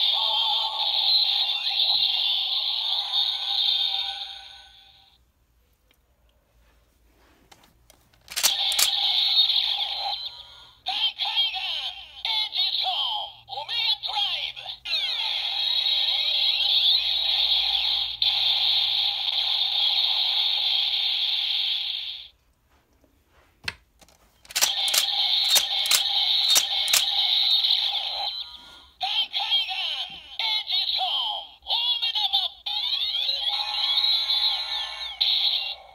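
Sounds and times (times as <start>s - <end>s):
toy electronic sound effects and music: 0.0s - 5.2s, 8.3s - 22.3s, 24.5s - 35.9s
sharp clicks: 8.2s - 9.1s, 24.4s - 27.3s.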